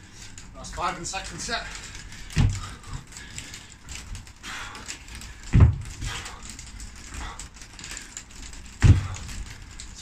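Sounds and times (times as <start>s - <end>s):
feet thudding on box: 2.4s - 2.7s, 5.5s - 6.1s, 8.8s - 9.2s.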